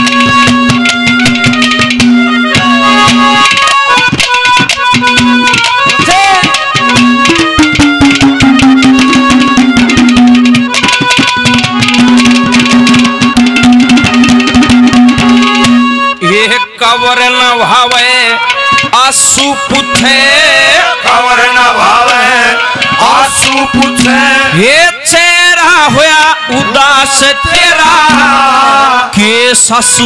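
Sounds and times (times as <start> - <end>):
fast hand-drum rhythm: 0.0 - 16.2, 18.7 - 21.4, 22.0 - 24.8, 25.9 - 28.6
held sliding melody note: 0.0 - 17.3.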